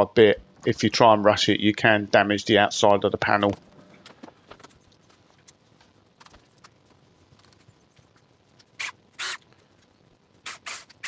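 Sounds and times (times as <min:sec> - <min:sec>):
short rasping bursts: 0:08.8 - 0:09.4, 0:10.4 - 0:11.0.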